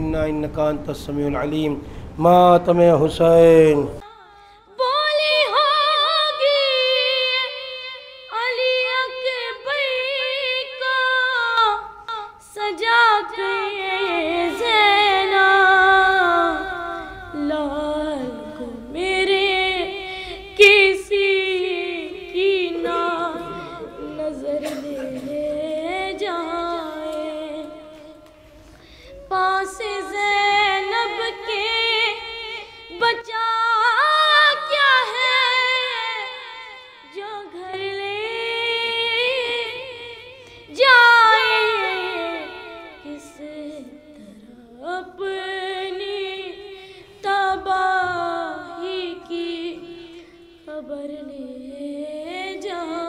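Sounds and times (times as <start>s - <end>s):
person singing a lament: 13.2s - 27.5s.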